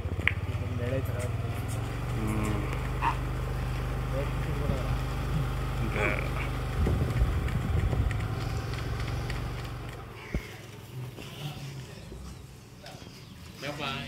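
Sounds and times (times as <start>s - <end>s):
vehicle engine humming: 0.0s - 14.0s.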